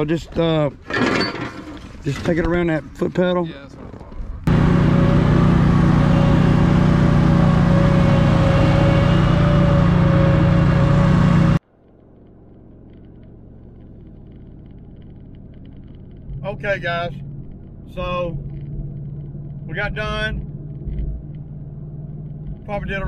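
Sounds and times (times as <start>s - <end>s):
road noise inside a truck cab: 0.0s - 23.0s
lawn mower engine running: 4.5s - 13.6s.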